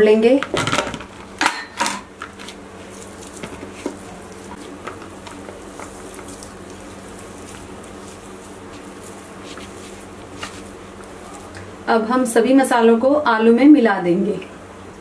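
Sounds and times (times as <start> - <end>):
steady low hum: 0.0 - 15.0
potatoes squishing: 2.1 - 11.7.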